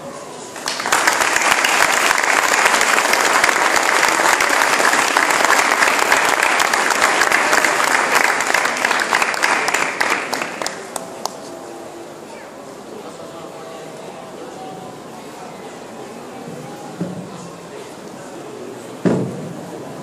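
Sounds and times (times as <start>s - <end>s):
large crowd applauding: 0.6s - 11.4s.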